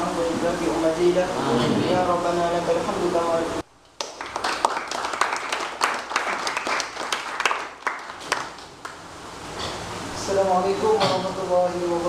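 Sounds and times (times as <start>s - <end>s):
group applauding: 4.0s - 9.1s.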